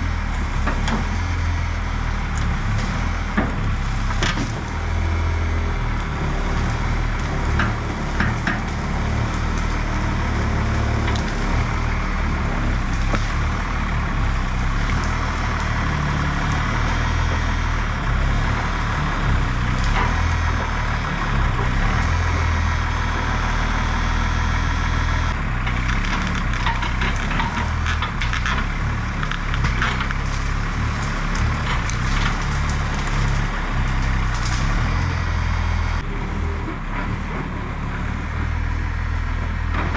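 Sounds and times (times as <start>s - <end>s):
wood crunching and cracking: 0.0s - 36.1s
diesel truck engine revving: 0.0s - 39.9s.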